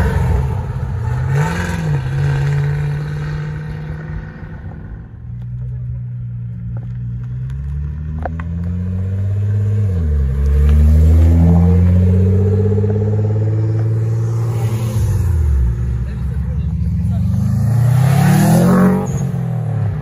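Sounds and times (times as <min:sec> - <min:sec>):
sports car accelerating past: 0:07.6 - 0:16.0, 0:16.8 - 0:20.0.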